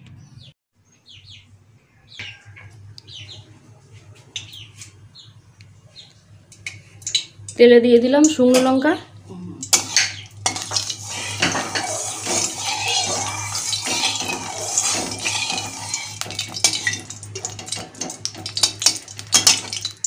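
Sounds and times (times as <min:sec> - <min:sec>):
chillies sizzling in hot oil: 0:09.6 - 0:20.0.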